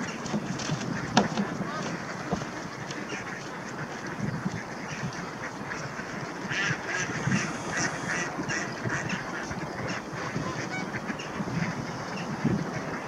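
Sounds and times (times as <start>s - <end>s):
ducks quacking: 0.9s - 13.0s
swans honking: 4.8s - 12.3s.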